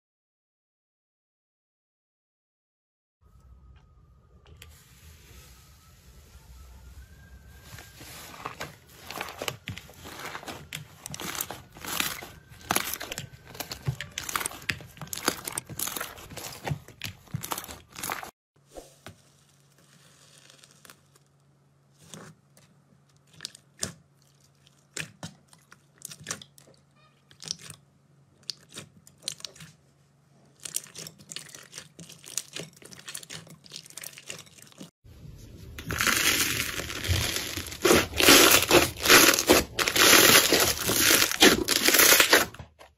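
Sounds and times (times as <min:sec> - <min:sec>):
slime crackling squishes: 0:07.9 - 0:18.3, 0:30.5 - 0:34.9, 0:35.8 - 0:42.5.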